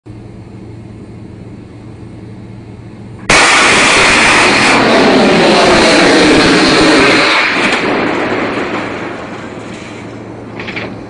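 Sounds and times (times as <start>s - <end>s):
low steady hum: 0.1s - 3.3s, 7.8s - 11.0s
rush of loud noise: 3.2s - 11.0s
underwater mine blast: 3.3s - 10.2s.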